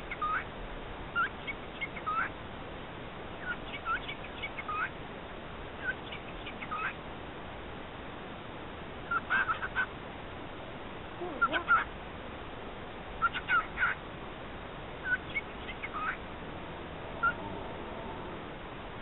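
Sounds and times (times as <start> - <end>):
cockatiel mimicking speech: 1.9 - 2.3, 3.4 - 4.9, 5.8 - 7.0, 9.1 - 9.9, 11.2 - 11.9, 13.2 - 14.0, 15.0 - 16.2.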